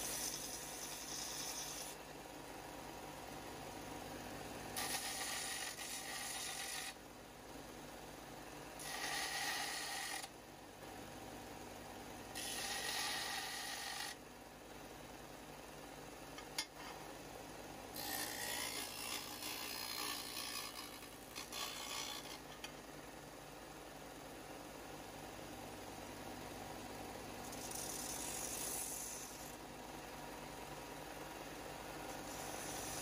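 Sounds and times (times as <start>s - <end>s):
steel grinding on sander: 0.0s - 2.0s, 4.8s - 7.0s, 8.8s - 10.3s, 12.4s - 14.2s, 32.2s - 33.0s.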